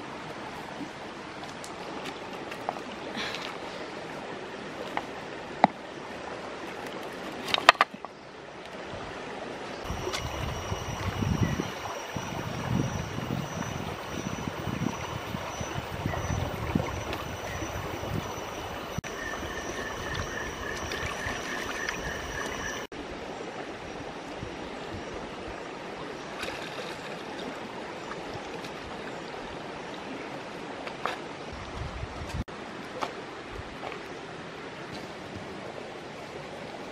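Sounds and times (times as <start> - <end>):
rocky stream running: 0.0 - 36.9
high pulsing tone: 9.9 - 22.9
water sloshing in a basket: 9.9 - 22.9.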